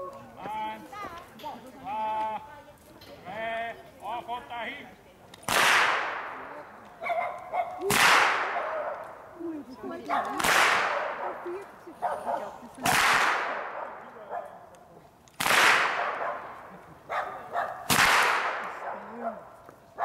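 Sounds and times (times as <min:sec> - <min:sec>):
whip cracks: 0:05.4 - 0:06.5, 0:07.8 - 0:08.8, 0:10.3 - 0:11.2, 0:12.8 - 0:13.9, 0:15.4 - 0:16.2, 0:17.9 - 0:18.8.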